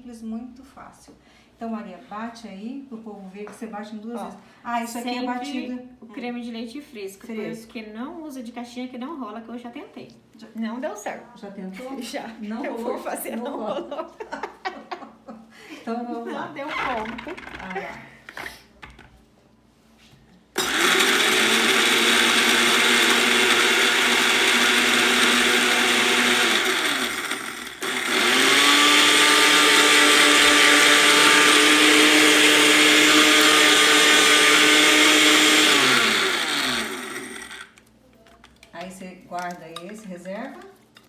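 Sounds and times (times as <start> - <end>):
blender grinding biscuits: 20.6 - 37.8.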